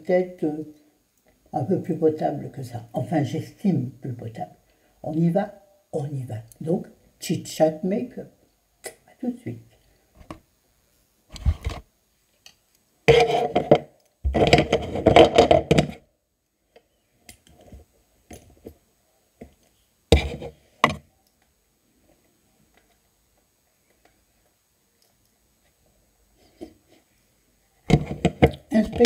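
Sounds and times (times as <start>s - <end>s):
objects scraped and knocked: 13.1s - 16.0s, 20.1s - 21.0s, 27.9s - 29.0s.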